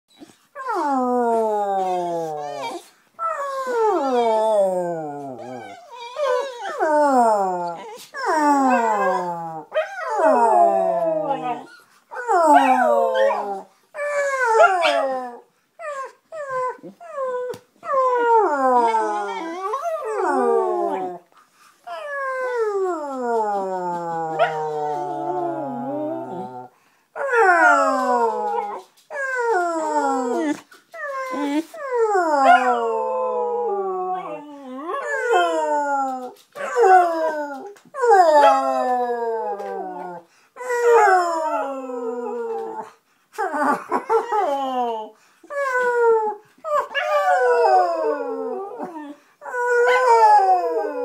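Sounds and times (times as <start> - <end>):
dog howling: 0.7 - 15.4, 22.0 - 30.5.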